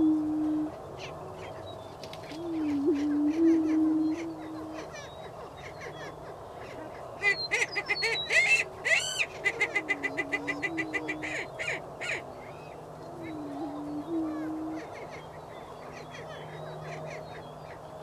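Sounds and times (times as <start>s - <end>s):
low wavering booming hoots: 0.0s - 1.0s, 2.2s - 5.1s, 8.9s - 12.2s, 13.0s - 17.4s
prairie chickens cackling: 0.0s - 18.0s.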